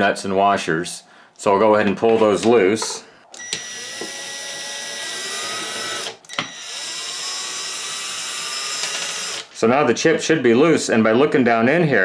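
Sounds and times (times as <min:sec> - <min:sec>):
cordless drill running: 0:03.4 - 0:09.5.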